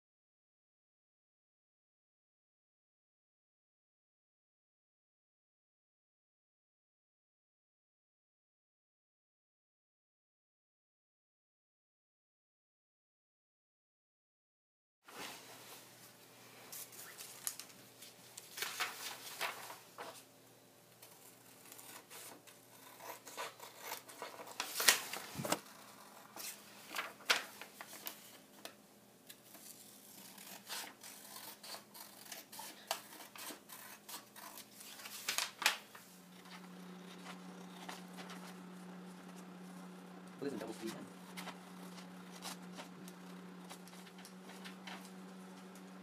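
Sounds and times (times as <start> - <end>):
low steady hum: 15.4 - 46.0
paper rustling: 16.6 - 20.3, 21.0 - 46.0
scissors snipping paper: 21.0 - 45.9.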